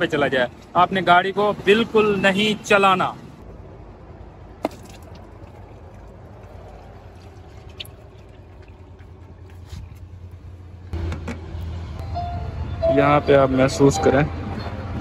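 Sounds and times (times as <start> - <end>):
oil draining into a bucket: 4.6 - 9.7.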